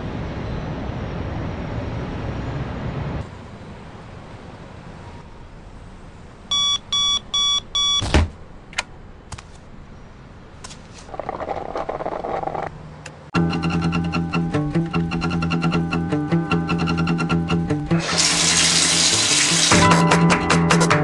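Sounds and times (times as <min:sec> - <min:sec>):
distant traffic: 0:00.0 - 0:13.4
wind: 0:00.0 - 0:13.4
digital alarm clock beeping: 0:06.5 - 0:08.0.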